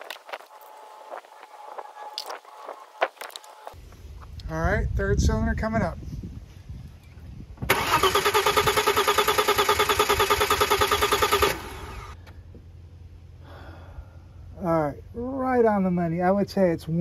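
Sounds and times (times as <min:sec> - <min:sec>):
starter motor cranking engine: 0:07.7 - 0:12.2.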